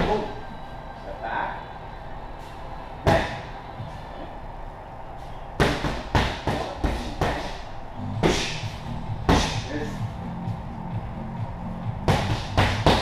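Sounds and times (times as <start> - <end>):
punches hitting focus mitts: 12.0 - 13.0.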